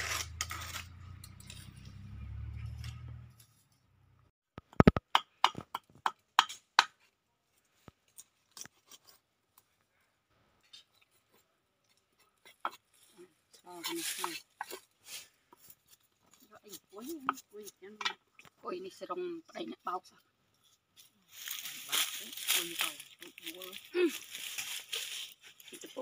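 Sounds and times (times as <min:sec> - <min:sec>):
knife scraping fish scales: 0:00.0 - 0:02.0.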